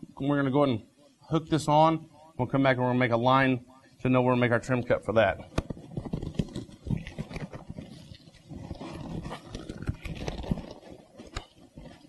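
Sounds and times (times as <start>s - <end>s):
leather cover rustling and creaking: 5.5s - 12.0s.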